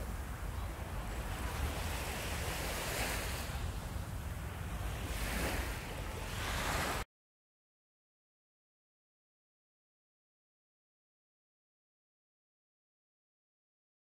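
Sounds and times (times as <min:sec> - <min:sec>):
surf washing on beach: 0:00.0 - 0:07.0
wind buffeting microphone: 0:00.0 - 0:07.0.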